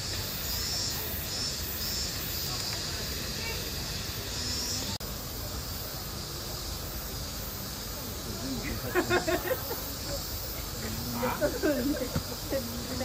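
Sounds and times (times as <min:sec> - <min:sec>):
outdoor background hiss: 0:00.0 - 0:13.0
people talking: 0:00.5 - 0:01.4, 0:02.2 - 0:13.0.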